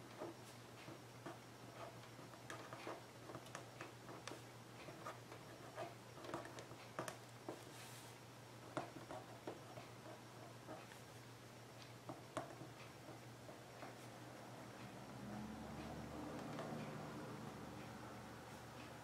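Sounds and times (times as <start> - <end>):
low steady hum: 0.0 - 19.0
pen scratching on paper: 4.1 - 6.8.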